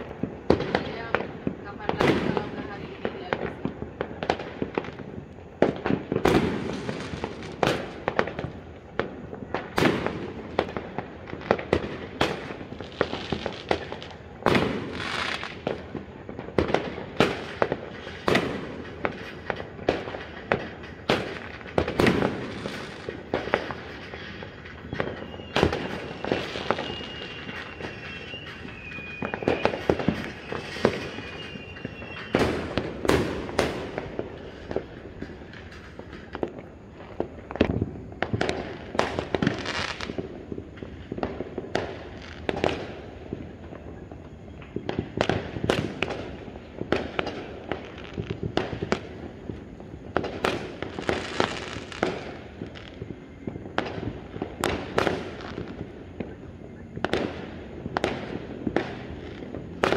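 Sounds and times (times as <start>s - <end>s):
fireworks bangs: 0.0s - 59.9s
fireworks crackling: 0.0s - 59.9s
high falling whistle: 24.8s - 32.8s.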